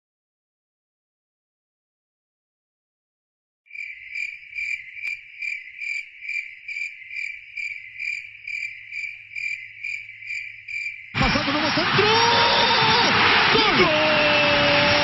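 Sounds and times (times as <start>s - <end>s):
crickets chirping: 3.7s - 11.2s.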